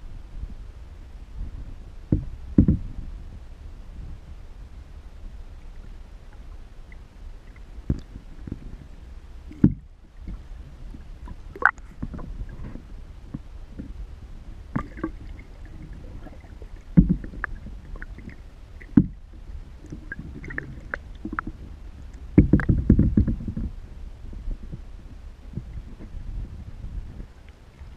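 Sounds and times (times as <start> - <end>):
muffled underwater rumble: 0.0 - 27.9
paddle knocks and clicks: 2.1 - 2.9, 9.5 - 10.4, 17.0 - 19.2, 22.3 - 23.7.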